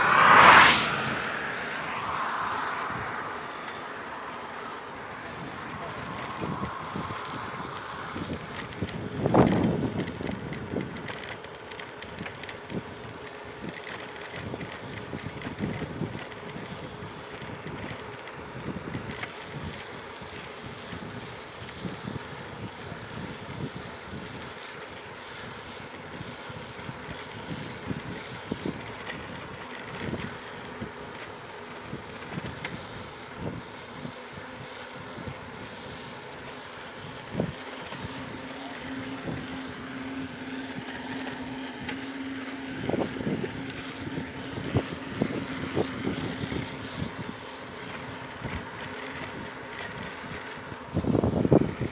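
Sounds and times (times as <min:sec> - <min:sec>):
bicycle rattling over bumps: 0:00.0 - 0:51.9
bicycle tyre noise on asphalt: 0:00.0 - 0:51.9
wind on microphone: 0:05.2 - 0:11.0, 0:42.7 - 0:49.5, 0:50.9 - 0:51.9.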